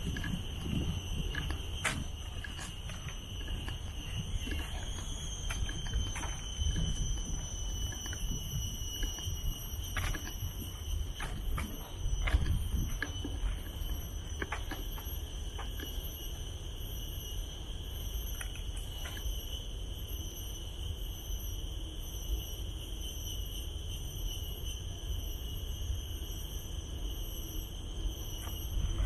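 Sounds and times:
insects shrilling: 0:00.0 - 0:21.6.

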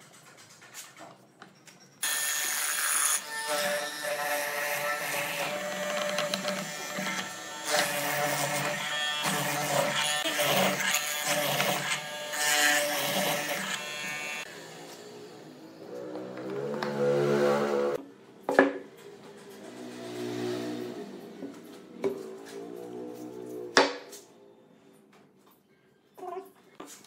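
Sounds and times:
mortiser motor buzzing: 0:02.0 - 0:18.0.

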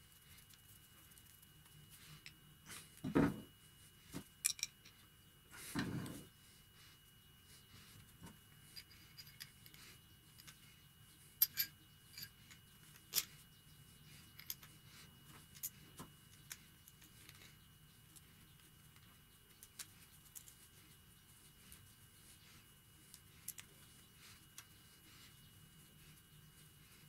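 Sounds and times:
faint steady hum: 0:00.0 - 0:27.0
small metal parts clicking: 0:04.4 - 0:04.8, 0:11.4 - 0:13.3.

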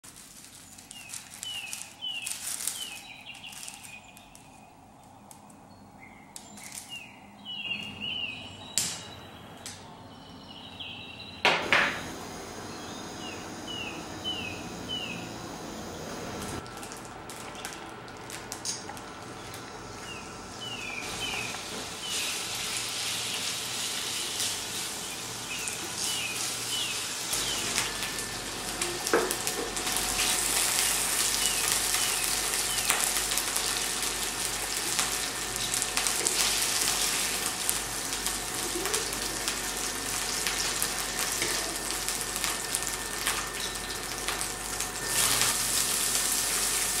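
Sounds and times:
small birds chirping: 0:00.4 - 0:11.4, 0:12.0 - 0:16.6, 0:19.3 - 0:22.6, 0:24.9 - 0:29.0, 0:30.0 - 0:33.8
oil sizzling in a pan: 0:21.0 - 0:47.0.

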